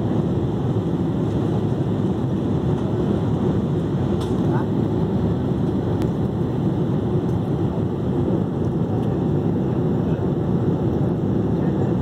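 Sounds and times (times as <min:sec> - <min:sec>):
airliner cabin noise: 0:00.0 - 0:12.0.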